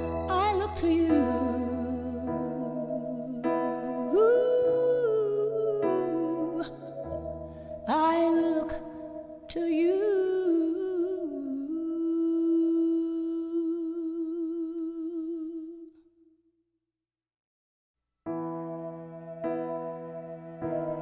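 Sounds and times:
person singing with vibrato: 0:00.0 - 0:16.0.

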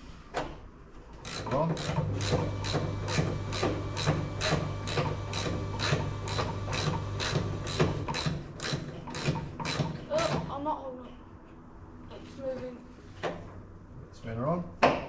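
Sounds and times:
ratchet wrench clicking: 0:01.2 - 0:09.9.

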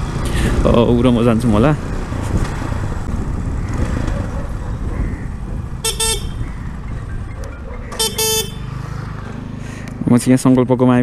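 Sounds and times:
motorcycle engine running: 0:03.2 - 0:09.6
horn toots: 0:05.8 - 0:06.7, 0:07.9 - 0:08.8.

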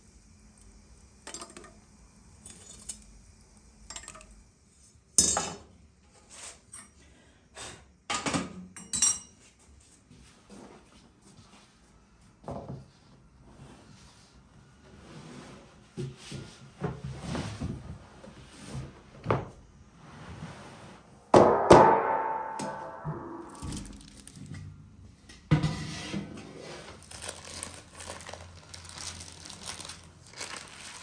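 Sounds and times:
loud metal clang: 0:21.4 - 0:24.6
metal clinks and clanks: 0:23.5 - 0:24.5.

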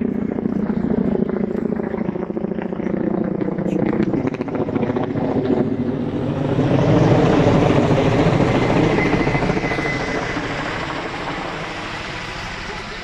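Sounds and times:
helicopter flying over: 0:00.0 - 0:13.0.

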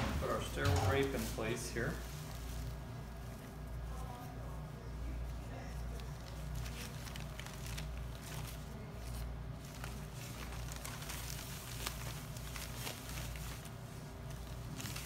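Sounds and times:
steady low hum: 0:00.0 - 0:15.0
drape rustling: 0:06.2 - 0:15.0.

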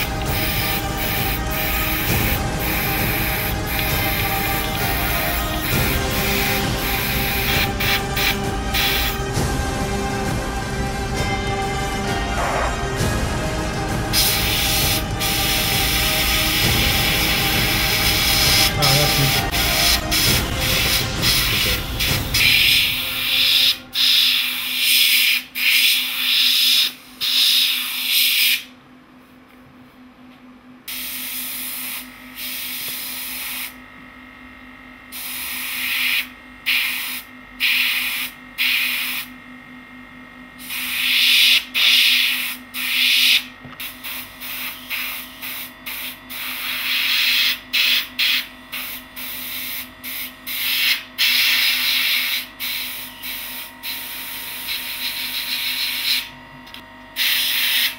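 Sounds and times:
airbrush hissing: 0:00.0 - 0:09.3, 0:14.1 - 0:28.6, 0:30.9 - 0:33.8, 0:35.1 - 0:39.3, 0:40.6 - 0:56.3, 0:57.2 - 0:57.9
low hum: 0:00.0 - 0:24.0.

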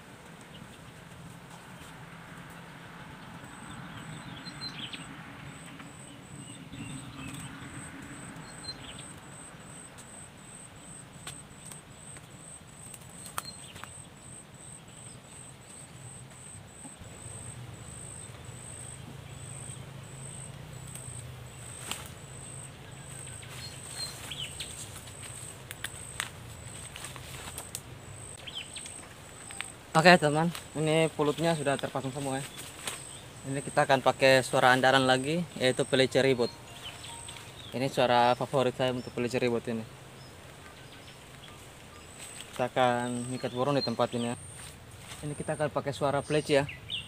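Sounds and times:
bird chirps: 0:03.2 - 0:47.0
leafy twigs clicking and rustling: 0:11.1 - 0:14.1, 0:17.1 - 0:35.9, 0:40.4 - 0:45.6
thin high-pitched pulsing call: 0:16.4 - 0:29.8, 0:35.5 - 0:37.8.

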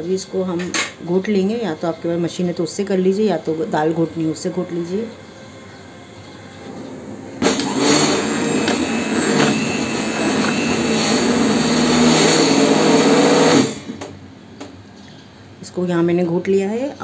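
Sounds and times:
hand blender churning food: 0:07.4 - 0:13.9.

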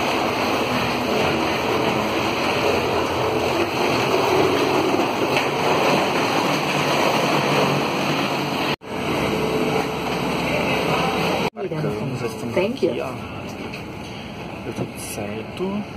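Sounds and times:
aircraft machinery rushing hum: 0:00.0 - 0:11.5.

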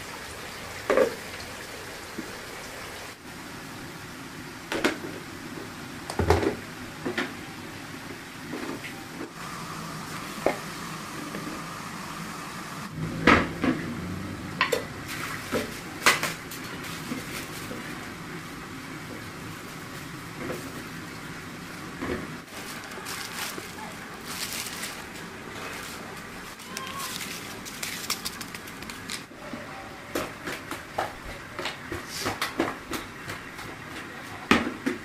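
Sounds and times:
water boiling in a pan: 0:00.0 - 0:06.6.

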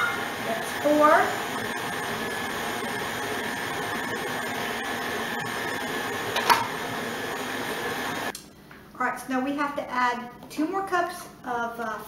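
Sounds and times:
stand mixer motor running: 0:00.0 - 0:08.3.

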